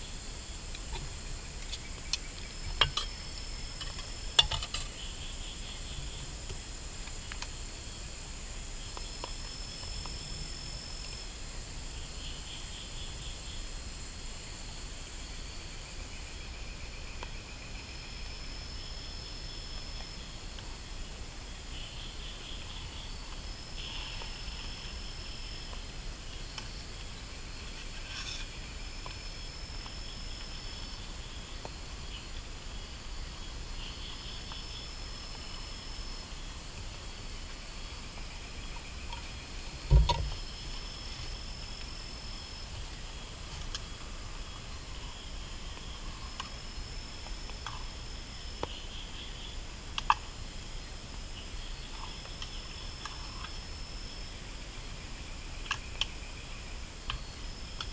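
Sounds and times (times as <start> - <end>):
insect chorus buzzing and trilling: 0.0 - 57.9.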